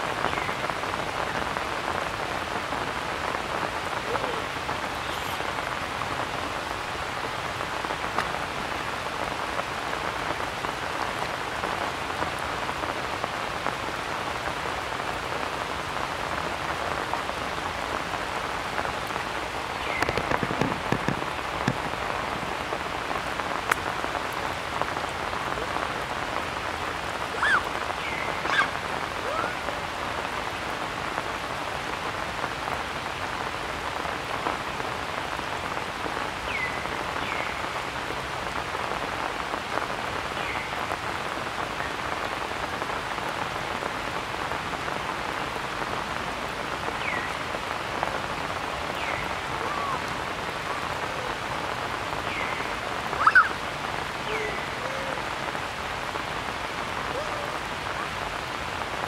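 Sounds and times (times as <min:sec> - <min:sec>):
steady rain falling: 0:00.0 - 0:59.0
brief high calls: 0:53.2 - 0:53.6.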